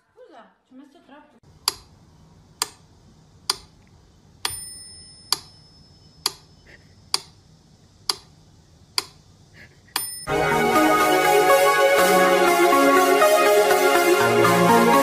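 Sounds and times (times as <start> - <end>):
clock ticking: 1.6 - 1.9
bell-like ding: 4.5 - 6.2, 10.0 - 10.3.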